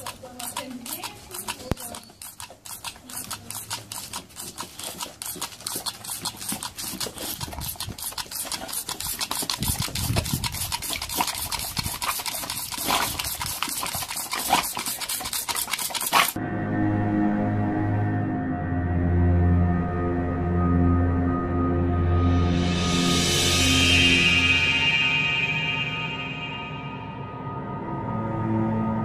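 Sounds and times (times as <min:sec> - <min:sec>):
water pistol squirting pulses: 0:00.0 - 0:16.4.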